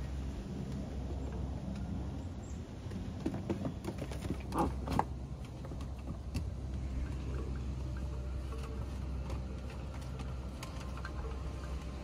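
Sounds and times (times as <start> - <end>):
puppy paws tapping on wooden deck: 2.8 - 6.8.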